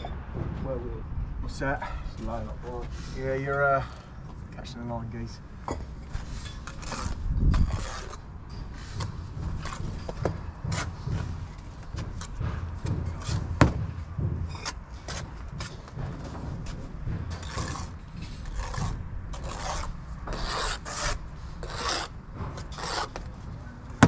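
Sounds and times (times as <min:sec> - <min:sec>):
hand tools scraping mortar: 0:06.1 - 0:11.3, 0:16.6 - 0:24.0.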